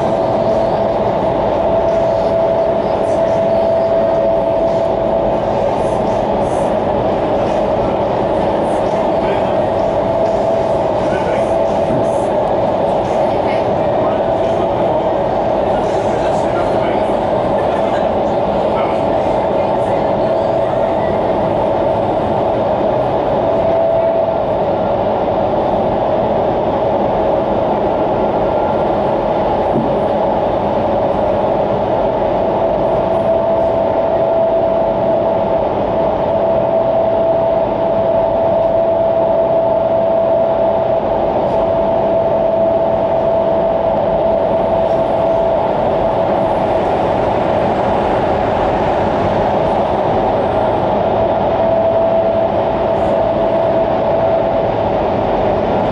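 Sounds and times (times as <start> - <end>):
humming tone: 0.0 - 17.0, 17.6 - 55.9
wind tunnel air rushing: 0.0 - 55.9.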